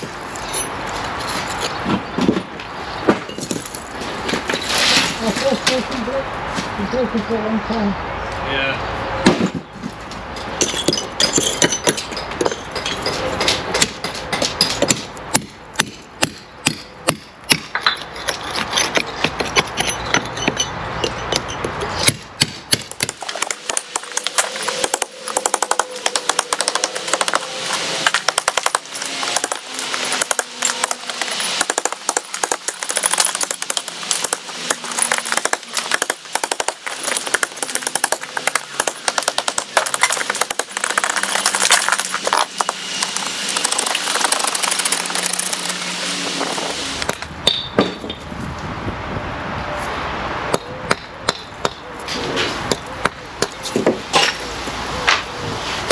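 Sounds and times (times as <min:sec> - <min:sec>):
hammer striking steel chisel: 0:10.6 - 0:45.8.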